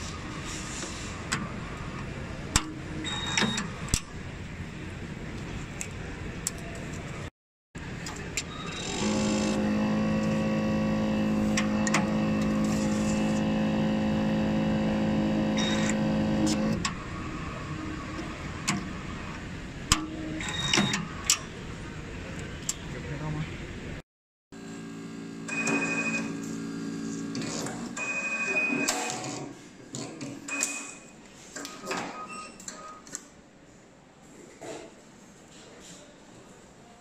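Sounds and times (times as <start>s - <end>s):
steady motor hum: 8.8s - 19.5s.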